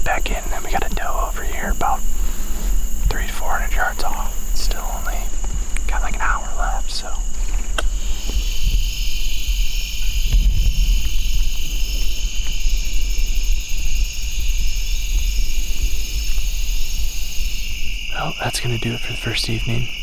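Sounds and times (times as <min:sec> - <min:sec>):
crickets and insects trilling: 0:00.0 - 0:20.0
steady low rumble: 0:00.0 - 0:20.0.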